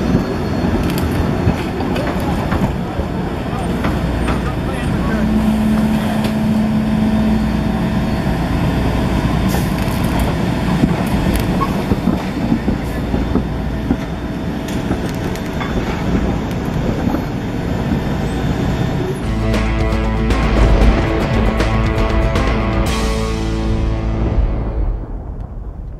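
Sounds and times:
light rail vehicle rumbling: 0.0 - 25.9.

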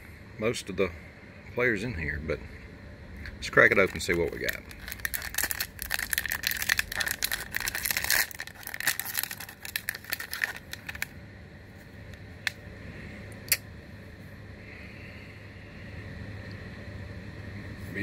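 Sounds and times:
plastic wrapper crinkling: 3.6 - 11.1.

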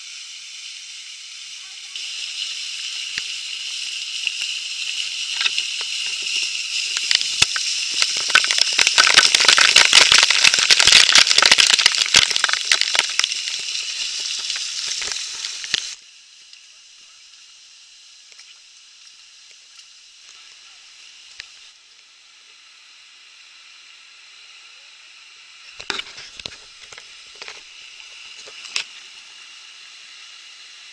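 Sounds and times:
faint hiss: 0.0 - 30.9
small waterfall rushing: 0.8 - 16.0, 19.5 - 22.4
water droplets popping on microphone: 5.3 - 16.0.

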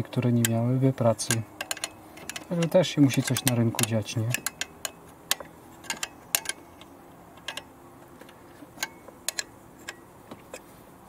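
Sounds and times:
spanner clicking on metal nut: 0.0 - 10.7.

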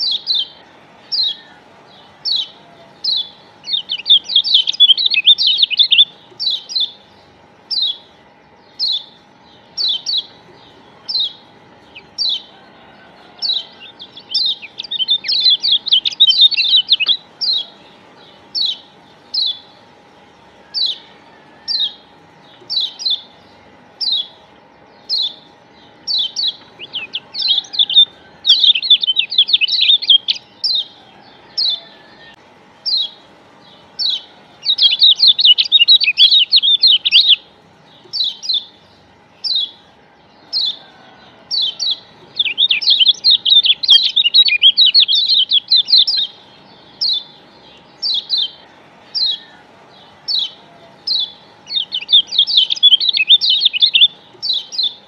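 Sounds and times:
bird chirping: 0.0 - 55.0
faint steady hum: 0.0 - 55.0
rapid chattering bird chirps: 0.0 - 55.0.

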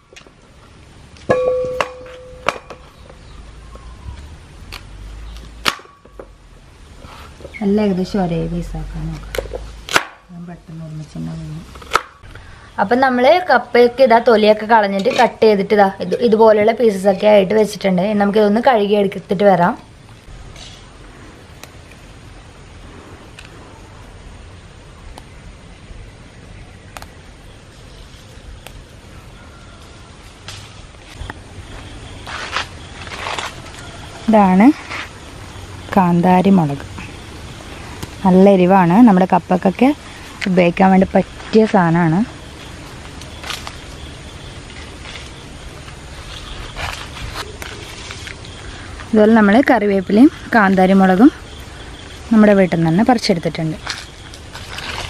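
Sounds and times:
leaves rustling: 0.0 - 55.0
metallic ringing tone: 1.3 - 3.0
stems snapping: 4.6 - 6.2, 9.1 - 10.3, 21.5 - 22.0, 26.9 - 27.2, 28.6 - 28.8, 30.4 - 31.4, 38.0 - 38.2, 43.0 - 44.0.

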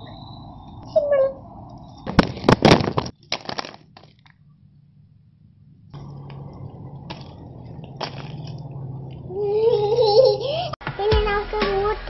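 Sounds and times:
sharp crackles and rustles: 1.7 - 4.5, 6.0 - 9.2
steady low hum: 4.2 - 10.8.

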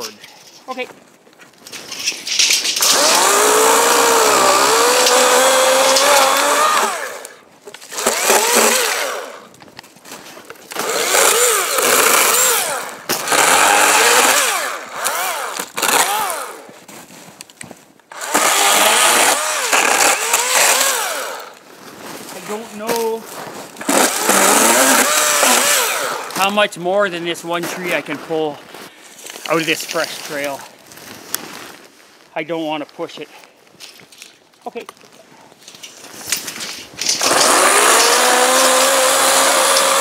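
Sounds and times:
chainsaw cutting branches: 2.4 - 16.8, 18.1 - 21.7, 22.9 - 26.6, 36.1 - 40.0.

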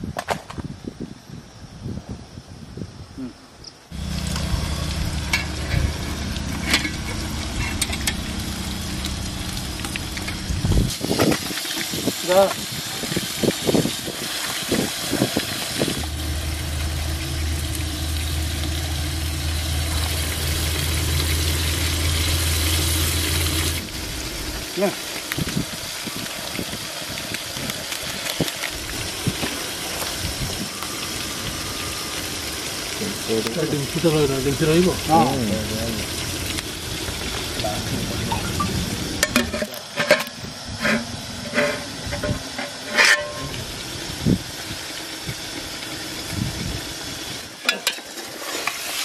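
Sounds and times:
flowing river water: 3.9 - 49.0
low burner hum: 3.9 - 49.0
onions sizzling in hot oil: 3.9 - 49.0.

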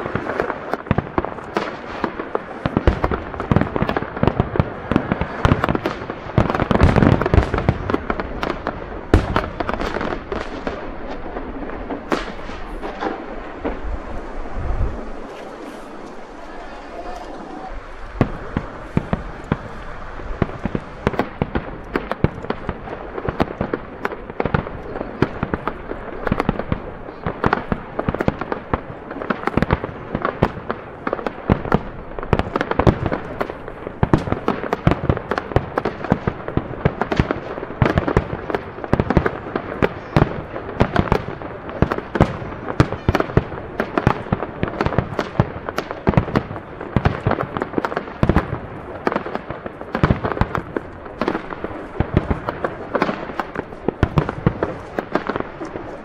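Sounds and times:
firework crackle: 0.0 - 56.0
firework shells bursting: 15.1 - 26.8.

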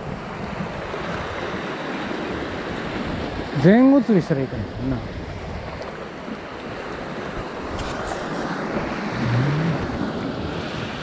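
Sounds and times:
waves washing over rocks: 0.0 - 11.0
wind rumbling on microphone: 4.6 - 11.0.

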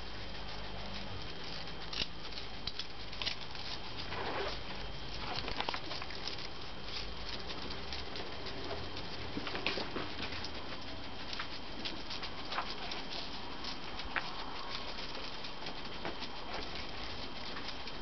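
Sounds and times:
claws pattering on brick: 0.0 - 18.0.

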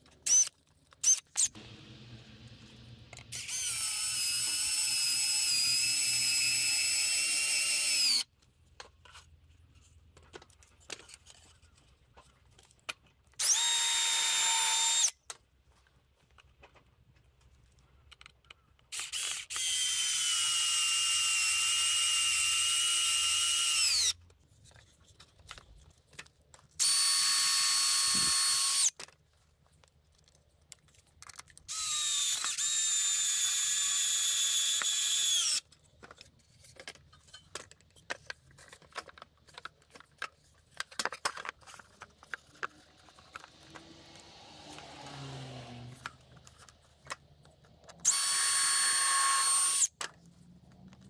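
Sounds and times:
power drill whining: 3.2 - 8.3, 13.4 - 15.2, 18.9 - 24.2, 26.8 - 28.9, 31.7 - 35.7, 48.0 - 50.0.

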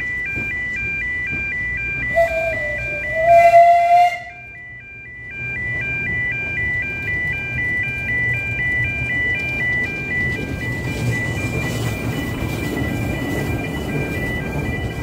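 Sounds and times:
level crossing alarm warble: 0.0 - 15.0
steam locomotive rumbling past: 0.0 - 15.0
steam locomotive whistle: 2.0 - 4.8.

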